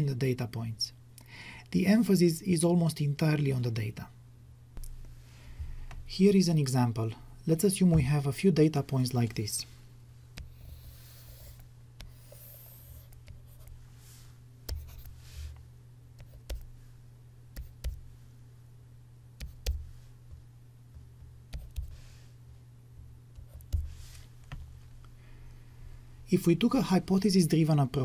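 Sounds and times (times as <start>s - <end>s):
stylus scraping on tablet: 10.4s - 13.8s, 14.7s - 15.6s
stylus tapping on tablet: 19.4s - 22.0s.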